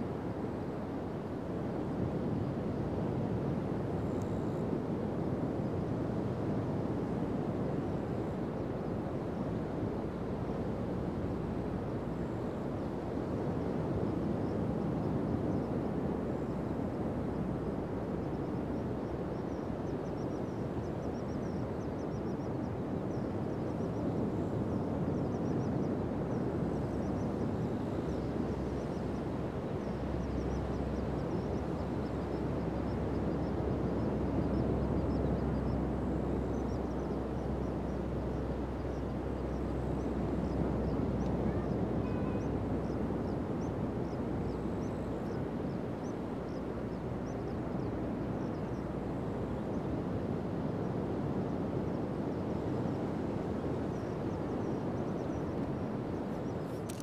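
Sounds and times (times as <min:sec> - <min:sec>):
faint high chirping: 0:19.4 - 0:49.9.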